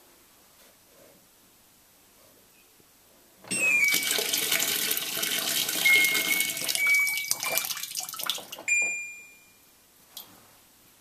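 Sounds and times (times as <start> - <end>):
water gushing into washing machine: 3.9 - 8.7.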